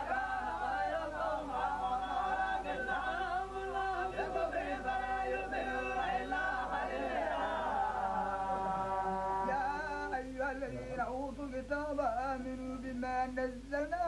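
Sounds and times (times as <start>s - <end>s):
man chanting melodically: 9.4s - 13.0s.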